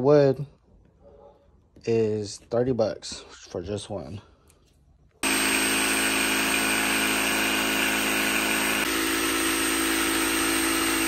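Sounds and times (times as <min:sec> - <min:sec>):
jigsaw sawing through wood: 0:05.2 - 0:11.0.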